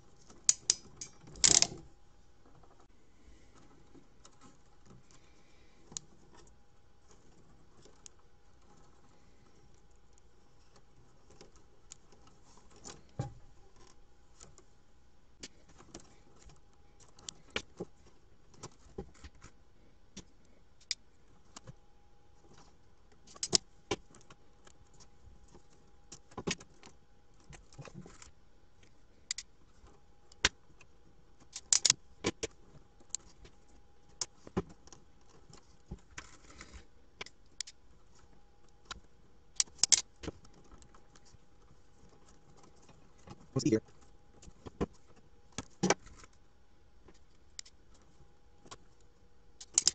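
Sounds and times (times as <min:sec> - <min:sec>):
small clicks and snaps of connectors: 0:00.4 - 0:01.8, 0:23.3 - 0:24.8, 0:29.3 - 0:29.5, 0:31.4 - 0:32.4, 0:37.2 - 0:37.8, 0:39.6 - 0:40.1, 0:49.6 - 0:49.9.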